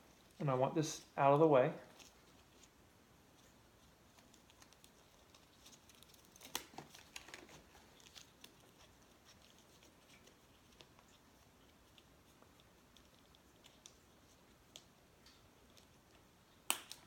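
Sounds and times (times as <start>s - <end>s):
helmet strap clicks and rustling: 4.1s - 11.0s.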